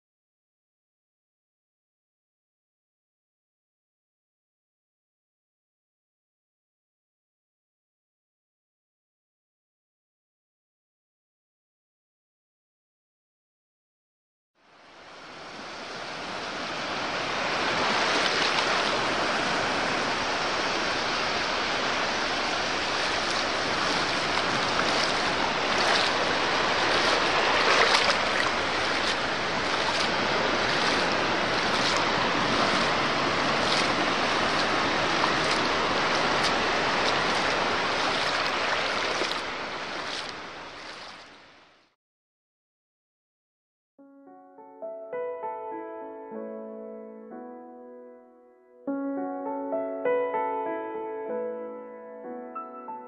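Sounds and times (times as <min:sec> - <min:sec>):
surf washing onto beach: 0:14.8 - 0:41.7.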